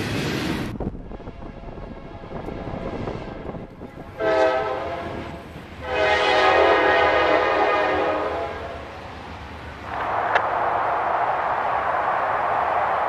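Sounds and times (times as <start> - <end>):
locomotive horn blasts: 4.2 - 8.9.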